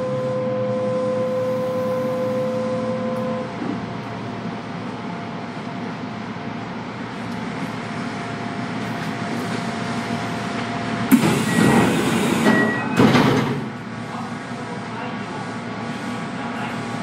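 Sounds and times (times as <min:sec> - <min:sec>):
train humming: 0:00.0 - 0:17.0
air hiss of train doors: 0:11.1 - 0:13.8
short high beeps: 0:12.4 - 0:13.0.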